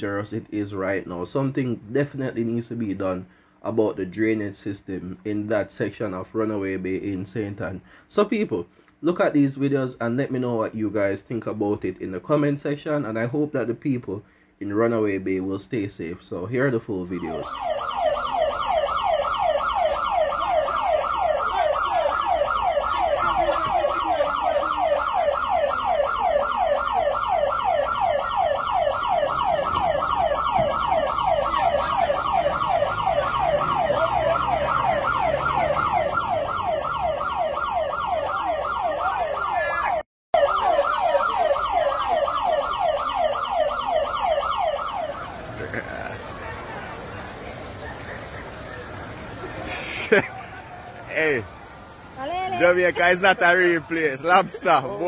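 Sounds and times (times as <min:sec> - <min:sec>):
electronic siren yelping: 0:17.4 - 0:45.6.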